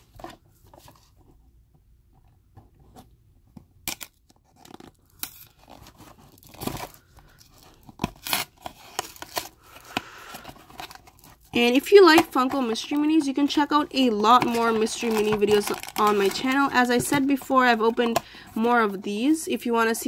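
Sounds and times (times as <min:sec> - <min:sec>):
packaging crackling and tearing: 0:03.9 - 0:18.4.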